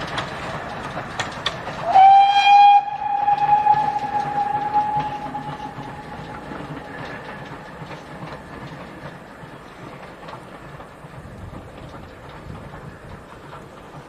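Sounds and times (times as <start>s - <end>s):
steam locomotive exhaust beats: 0.0s - 14.0s
steam locomotive whistle: 1.8s - 6.6s.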